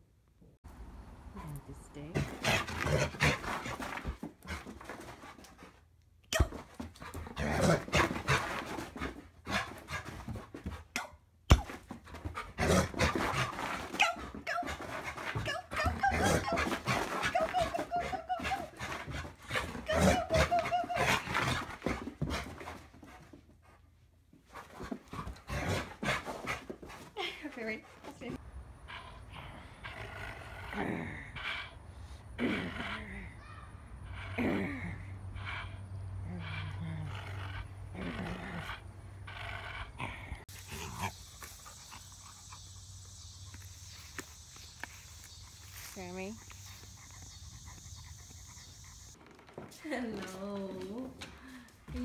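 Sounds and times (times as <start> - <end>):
dog scuffling: 11.7 - 23.6
dog panting: 11.9 - 30.6, 38.6 - 52.0
dog whining: 15.4 - 21.6.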